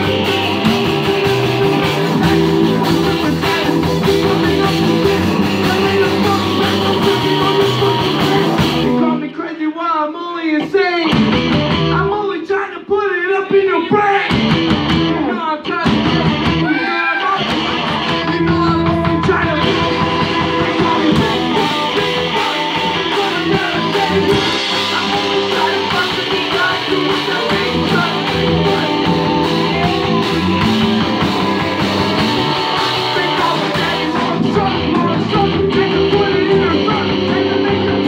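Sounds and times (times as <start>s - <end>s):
distorted electric guitars: 0.0s - 9.4s, 10.6s - 12.2s, 13.5s - 38.0s
drums: 0.0s - 38.0s
man singing into a microphone: 1.1s - 11.2s, 11.9s - 14.4s, 15.1s - 38.0s.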